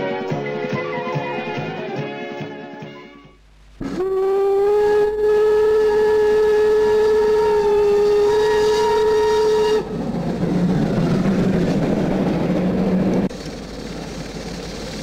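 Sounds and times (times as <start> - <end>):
steam locomotive whistle: 3.8 - 9.9
steam train rumbling: 3.8 - 15.0.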